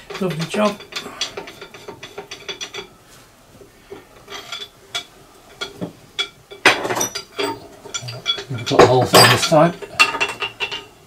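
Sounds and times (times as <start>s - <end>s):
metal clank: 3.9s - 11.0s.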